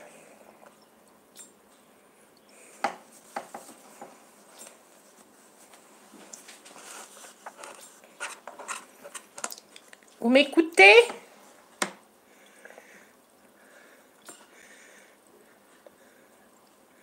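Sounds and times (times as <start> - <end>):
objects handled on a table: 2.8 - 9.9.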